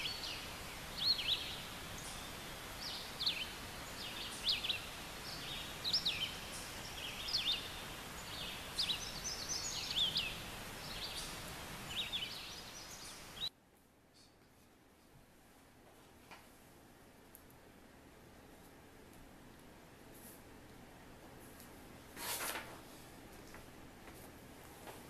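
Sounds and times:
small birds chirping: 0.0 - 13.5
outdoor background hiss: 0.0 - 25.0.

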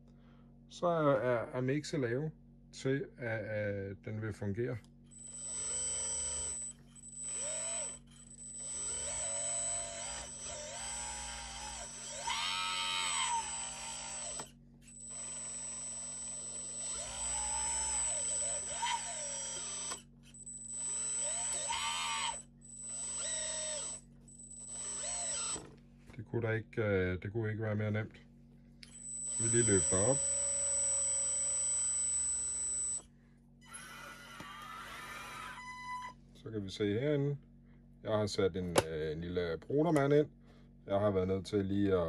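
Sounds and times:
hydraulic pump whining: 5.1 - 25.8, 28.8 - 36.2.

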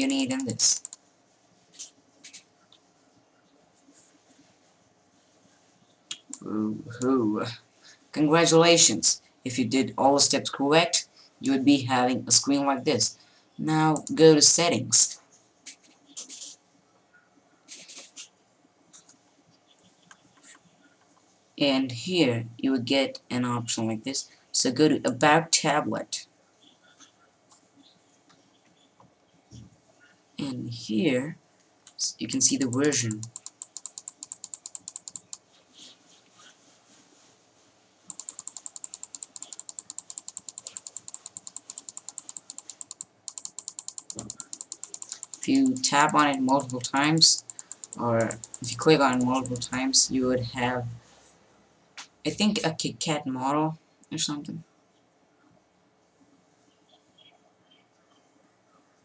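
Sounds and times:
computer mouse clicks: 0.0 - 1.0, 13.9 - 14.2, 32.6 - 35.4, 38.1 - 49.8.

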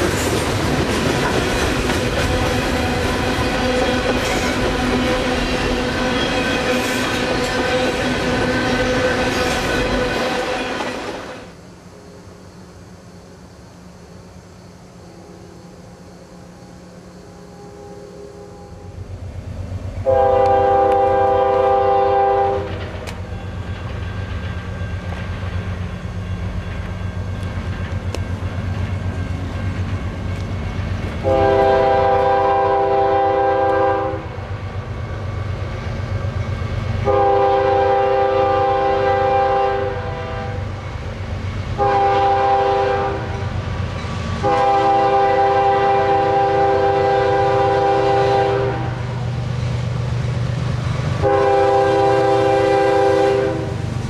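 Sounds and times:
train rumbling: 0.0 - 54.0
locomotive air horn blasts: 17.2 - 19.1, 20.0 - 22.8, 31.2 - 34.4, 37.0 - 40.7, 41.8 - 43.5, 44.4 - 49.1, 51.2 - 53.8.

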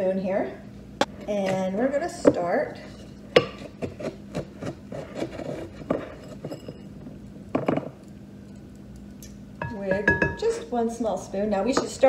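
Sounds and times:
spoon scraping dry ice: 3.8 - 6.8.

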